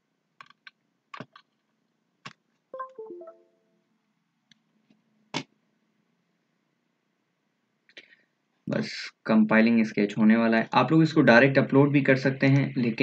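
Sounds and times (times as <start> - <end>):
electronic notification chime: 2.8 - 3.6.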